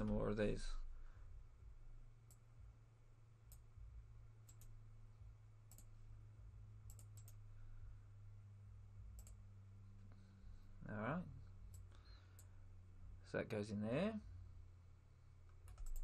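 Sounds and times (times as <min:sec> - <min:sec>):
low steady hum: 0:00.0 - 0:16.0
computer mouse clicks: 0:03.5 - 0:03.7, 0:04.4 - 0:04.8, 0:05.7 - 0:05.9, 0:06.8 - 0:07.4, 0:09.1 - 0:09.4, 0:15.5 - 0:16.0.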